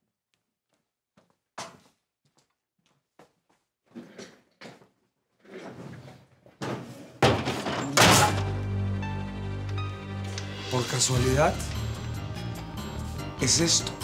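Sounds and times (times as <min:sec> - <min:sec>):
door slamming: 0:06.6 - 0:08.6.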